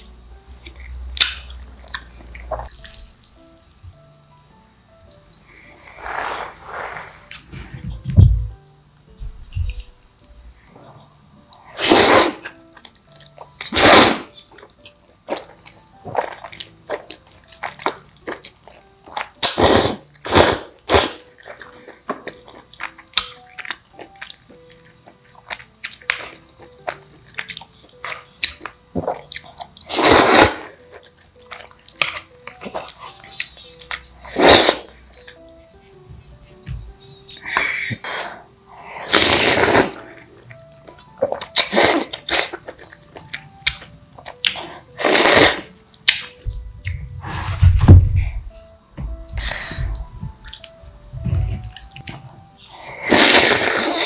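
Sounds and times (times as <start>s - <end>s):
soft background music: 0.0s - 54.0s
person slurping noodles: 5.8s - 7.3s, 11.7s - 12.5s, 13.7s - 14.3s, 19.4s - 21.2s, 29.9s - 30.8s, 34.2s - 34.9s, 39.0s - 40.1s, 41.6s - 42.6s, 45.0s - 45.7s, 52.8s - 54.0s
chewing sounds: 11.0s - 19.5s, 20.9s - 35.4s, 39.1s - 47.0s.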